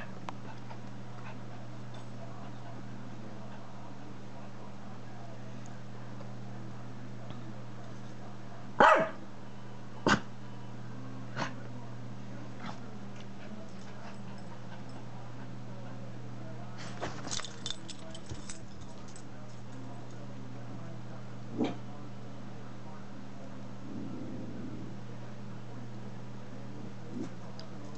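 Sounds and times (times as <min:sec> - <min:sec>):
dog barking: 0:08.8 - 0:09.2.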